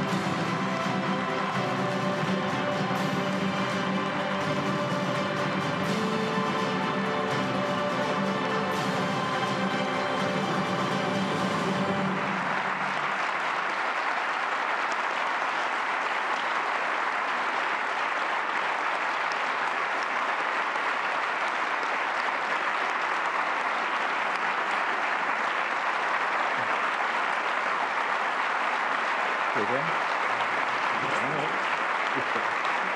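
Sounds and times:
orchestral music: 0:00.0 - 0:13.8
audience applause: 0:00.0 - 0:32.9.

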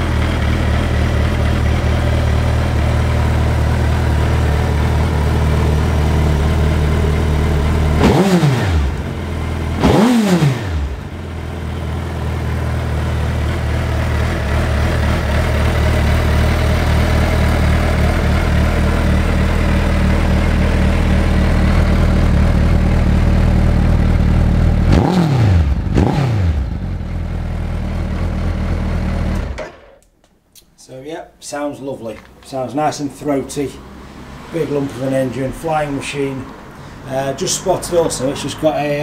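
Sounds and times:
motorcycle engine idling: 0:00.0 - 0:29.9
motorcycle throttle blips: 0:00.0 - 0:30.1.

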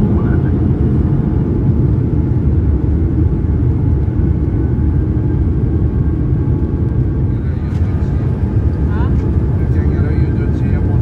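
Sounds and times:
airliner cabin roar: 0:00.0 - 0:11.0.

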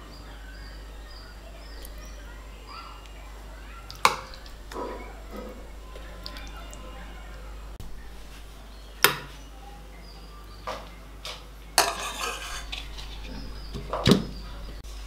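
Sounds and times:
spoon scraping pan: 0:03.9 - 0:07.1, 0:11.8 - 0:14.8.

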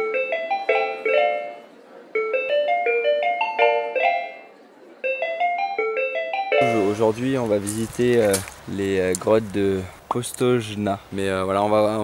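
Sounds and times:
bright melody of quick notes: 0:00.0 - 0:07.0.

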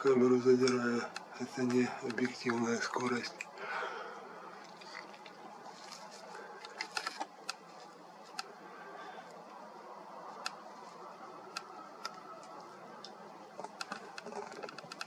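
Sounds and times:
faint background noise: 0:00.0 - 0:15.0
sharp clicks: 0:11.5 - 0:15.0.

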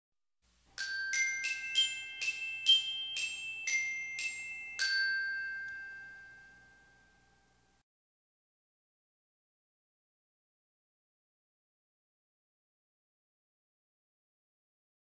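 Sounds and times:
mallet percussion jingle: 0:00.8 - 0:07.6.

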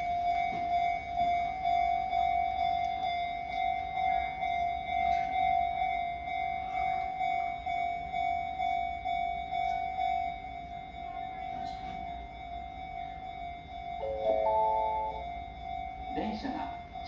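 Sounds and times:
level crossing bell dinging: 0:00.0 - 0:17.0.

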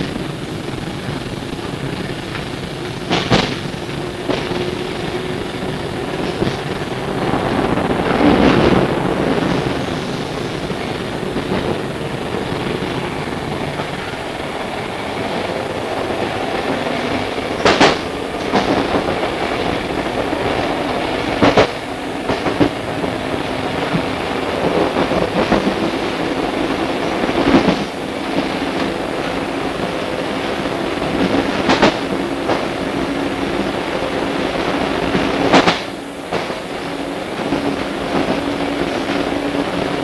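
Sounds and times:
train wheels rumbling on rails: 0:00.0 - 0:40.0
sharp knocks: 0:03.0 - 0:04.7.

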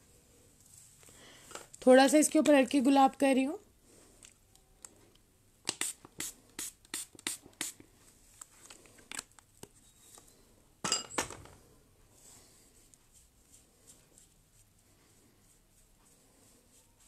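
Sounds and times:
spray bottle hissing: 0:05.7 - 0:07.8.

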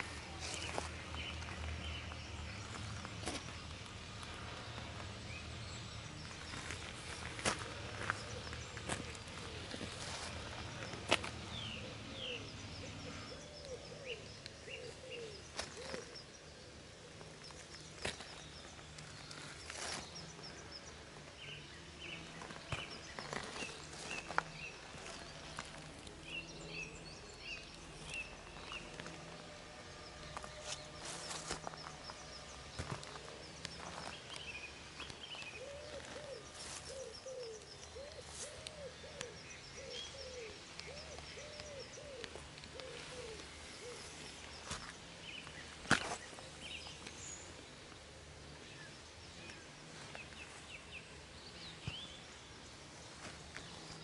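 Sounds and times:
birds chirping: 0:00.0 - 0:54.0
low bird hoots: 0:11.8 - 0:16.8, 0:35.5 - 0:44.2.

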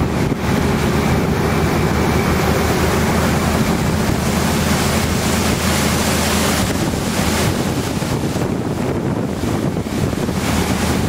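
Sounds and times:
boat engine humming: 0:00.0 - 0:11.0
water rushing from wake: 0:00.0 - 0:11.0
wind buffeting microphone: 0:00.0 - 0:11.0.

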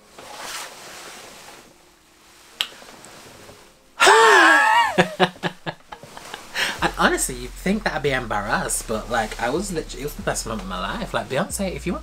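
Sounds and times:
man laughing: 0:04.0 - 0:07.5.

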